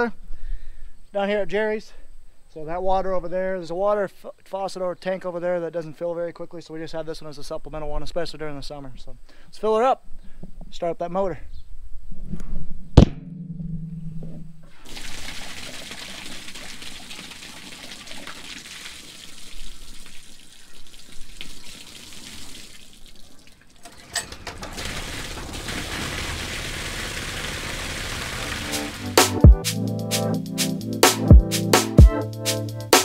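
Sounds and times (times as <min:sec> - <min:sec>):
hose water pouring into tank: 0:14.7 - 0:29.4.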